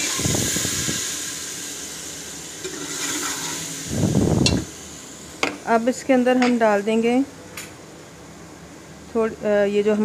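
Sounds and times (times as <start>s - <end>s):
bubbling and stirring in a pot: 0.0s - 3.9s
hot oil hissing and sizzling: 0.0s - 5.4s.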